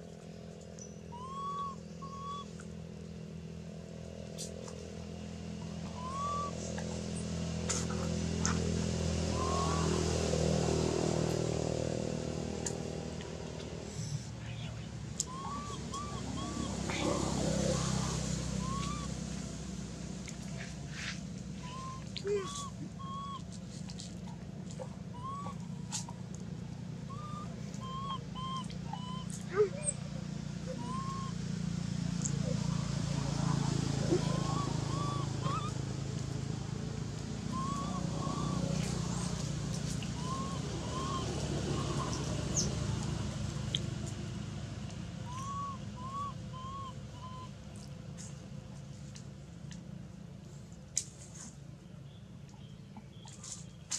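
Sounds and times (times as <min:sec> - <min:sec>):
low background rumble: 0:00.0 - 0:53.9
whistled animal calls: 0:00.8 - 0:02.7, 0:05.8 - 0:06.9, 0:09.3 - 0:10.2, 0:13.9 - 0:19.2, 0:21.0 - 0:23.5, 0:25.1 - 0:26.1, 0:27.0 - 0:31.6, 0:32.2 - 0:35.8, 0:37.4 - 0:43.3, 0:45.2 - 0:47.6
short pitched animal calls: 0:05.8 - 0:06.9, 0:20.6 - 0:23.5, 0:33.4 - 0:35.8, 0:37.5 - 0:43.2, 0:45.2 - 0:47.6.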